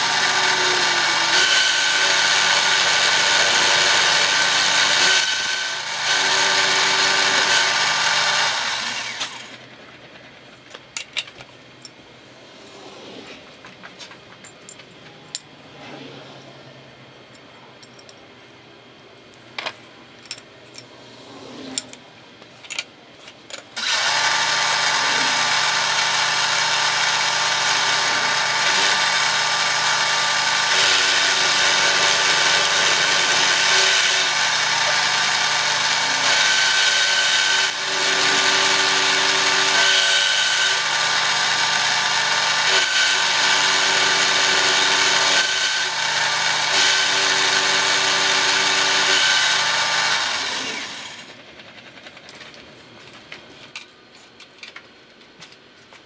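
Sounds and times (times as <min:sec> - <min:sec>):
milling machine cutting steel: 0:00.0 - 0:09.6, 0:23.8 - 0:51.4.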